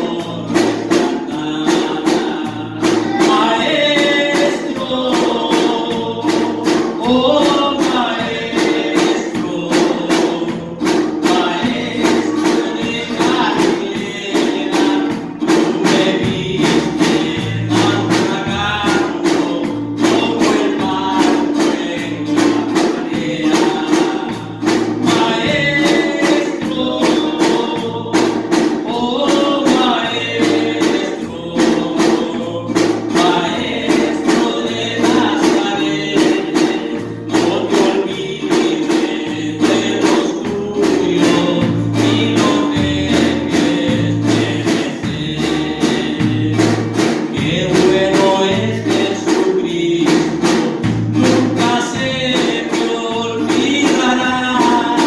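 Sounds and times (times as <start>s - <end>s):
acoustic guitar: 0.0s - 55.0s
bass line: 0.0s - 55.0s
man singing: 0.0s - 55.0s
percussion beat: 0.0s - 55.0s.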